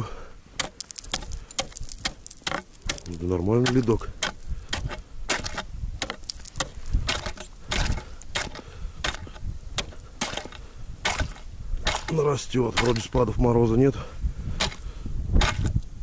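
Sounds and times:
ice chips skittering: 0.6s - 4.0s, 6.1s - 6.9s
ice chisel striking ice: 0.6s - 13.1s, 14.6s - 14.8s, 15.4s - 15.8s.

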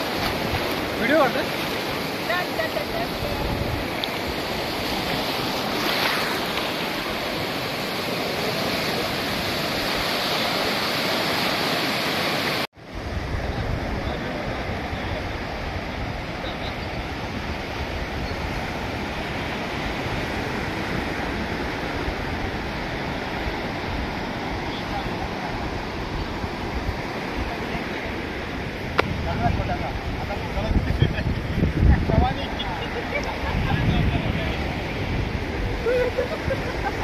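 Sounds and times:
waves breaking on beach: 0.0s - 37.0s
wind on microphone: 1.8s - 11.7s, 12.8s - 37.0s.

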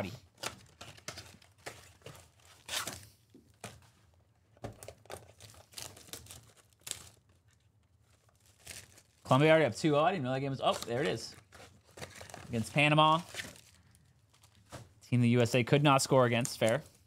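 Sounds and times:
card packs tearing open: 0.3s - 3.9s, 4.8s - 9.5s, 10.4s - 14.8s
plastic wrappers crinkling: 0.3s - 15.0s.

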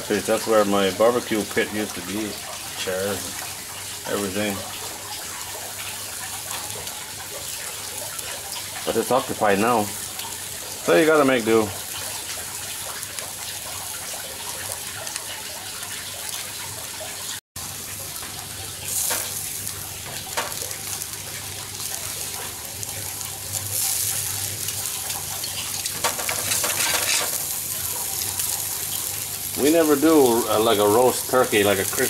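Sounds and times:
meat sizzling on a grill: 0.0s - 32.0s
metal tongs clicking on grill: 25.8s - 27.4s.

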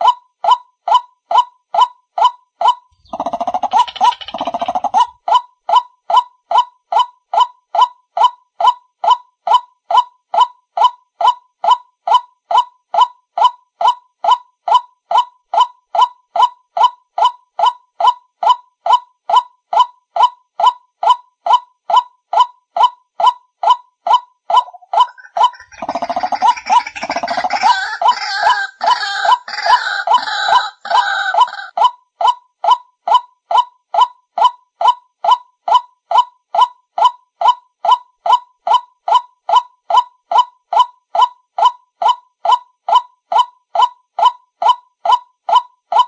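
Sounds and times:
harsh overlapping bird calling: 2.9s - 5.2s, 24.5s - 31.8s
bird calls through speaker: 3.0s - 5.2s, 24.6s - 31.7s.

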